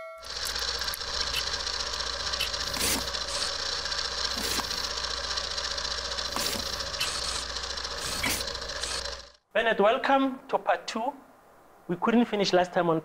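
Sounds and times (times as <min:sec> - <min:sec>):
low hum: 0:00.2 - 0:09.4
mechanical whirring: 0:00.2 - 0:09.4.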